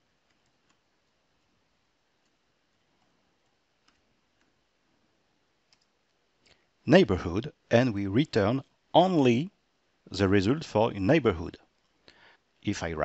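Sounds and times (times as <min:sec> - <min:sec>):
keyboard clicks: 0:03.8 - 0:04.5.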